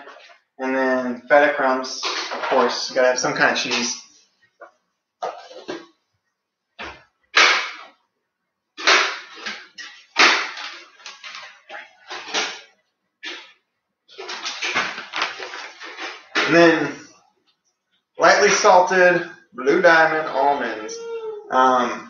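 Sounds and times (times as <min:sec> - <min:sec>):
plastic bag rustling: 0:08.8 - 0:16.6.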